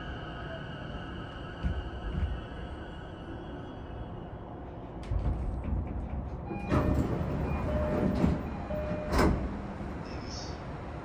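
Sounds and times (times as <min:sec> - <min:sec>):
train motor and wheel rumble: 0:00.0 - 0:11.0
train inverter stepping tones: 0:01.6 - 0:02.5, 0:05.0 - 0:09.6.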